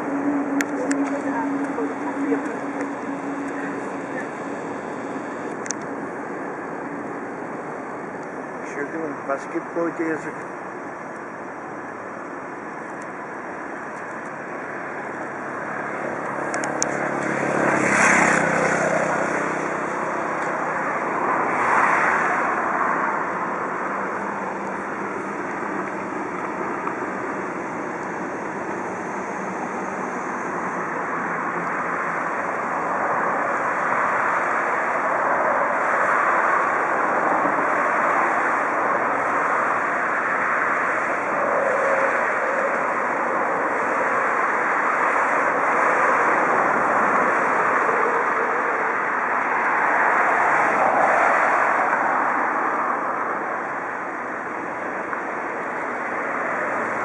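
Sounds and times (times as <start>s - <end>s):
trains rushing over tracks: 0.0s - 10.7s.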